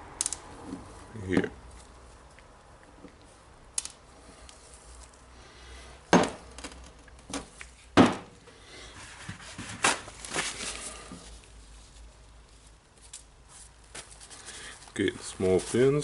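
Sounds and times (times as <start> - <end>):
paper towel rustling: 9.0 - 11.9, 13.5 - 16.0.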